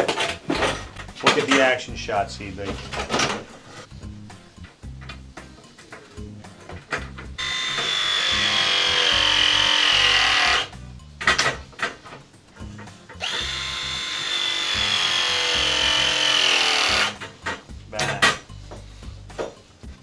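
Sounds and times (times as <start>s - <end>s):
press tool motor whine: 7.4s - 10.7s, 13.2s - 17.2s.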